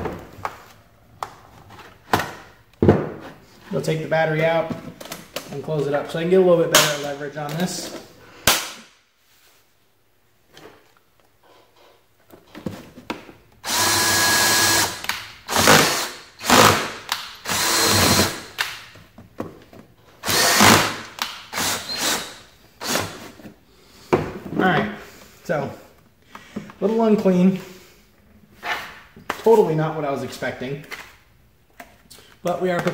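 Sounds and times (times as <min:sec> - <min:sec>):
cordless drill boring through plastic: 0:13.6 - 0:18.6, 0:20.2 - 0:23.2.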